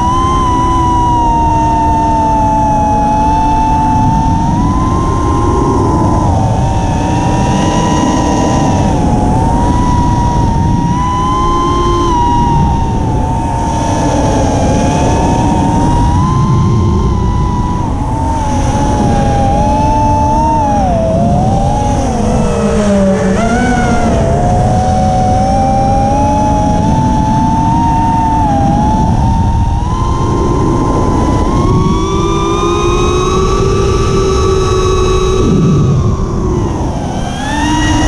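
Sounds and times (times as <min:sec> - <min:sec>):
drone motors whining: 0:00.0 - 0:38.0
wind rush on microphone: 0:00.0 - 0:38.0.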